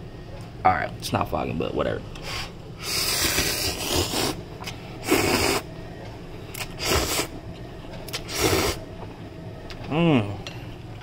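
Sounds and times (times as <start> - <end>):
person blowing and slurping noodles: 2.3 - 4.4, 5.0 - 5.7, 6.6 - 7.4, 8.2 - 8.8.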